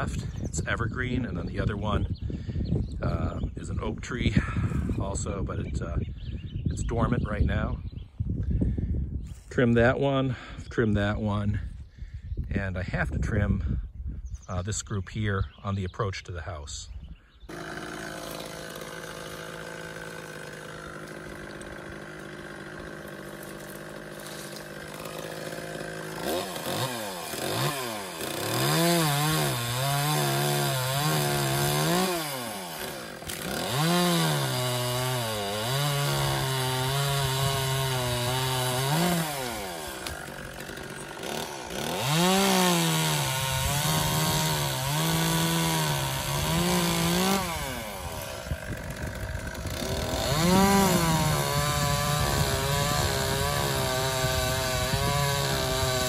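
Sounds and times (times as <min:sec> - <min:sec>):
chainsaw cutting wood: 0:17.5 - 0:56.0.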